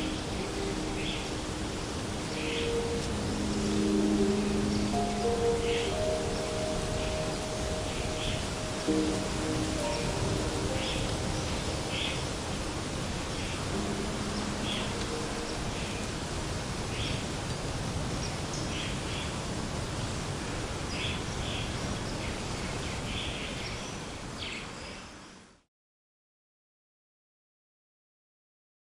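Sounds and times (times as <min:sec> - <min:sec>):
songbird chirps: 0:00.0 - 0:25.5
rustling background hiss: 0:00.0 - 0:25.6.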